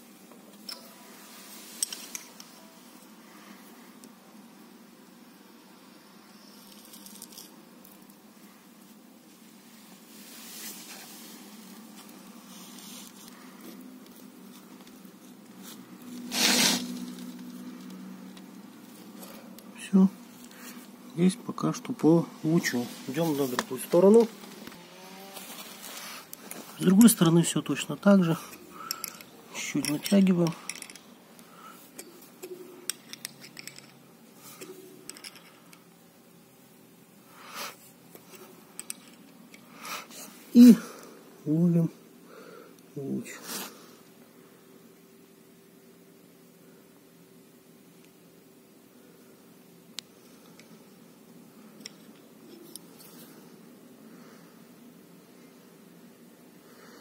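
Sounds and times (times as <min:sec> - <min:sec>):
wrench clicking and scraping: 0:01.8 - 0:02.4, 0:28.5 - 0:31.1, 0:31.9 - 0:34.0, 0:34.6 - 0:35.8, 0:38.8 - 0:39.6
loud rustle: 0:14.6 - 0:17.6, 0:22.6 - 0:26.9.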